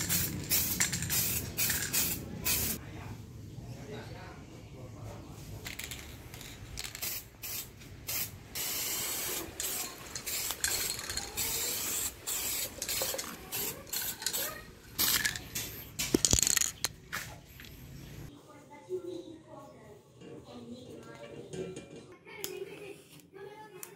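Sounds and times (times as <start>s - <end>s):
spray-paint can hissing: 0.0s - 2.8s, 6.8s - 15.4s.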